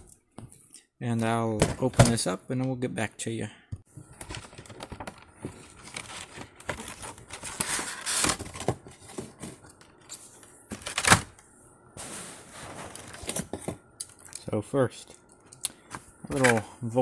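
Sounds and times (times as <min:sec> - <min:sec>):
cardboard scraping: 0:05.5 - 0:09.6, 0:12.0 - 0:13.6.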